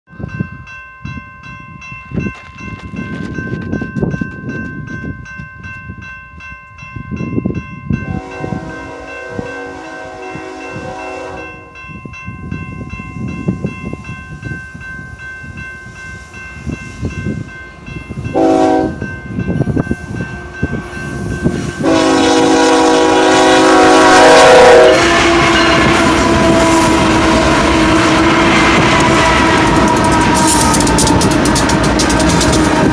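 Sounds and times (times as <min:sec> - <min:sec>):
crossing warning bell ringing: 0:00.1 - 0:32.9
diesel locomotives passing: 0:07.4 - 0:32.9
train horn blasts: 0:08.0 - 0:11.8, 0:18.3 - 0:19.1, 0:19.9 - 0:32.9.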